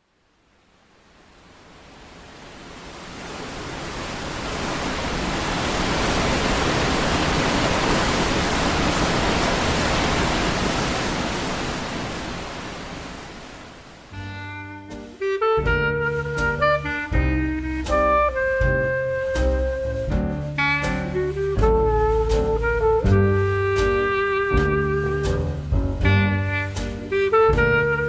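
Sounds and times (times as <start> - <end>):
waterfall rushing: 1.2 - 14.3
music with pitched notes: 14.2 - 28.0.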